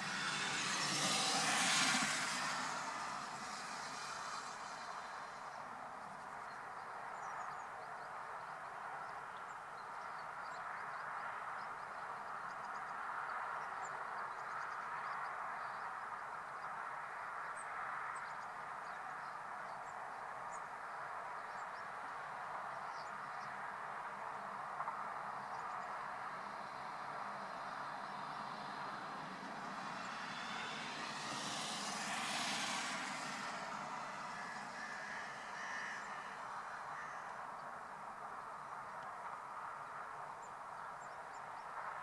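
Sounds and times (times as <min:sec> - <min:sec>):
outdoor background noise: 0:00.0 - 0:42.0.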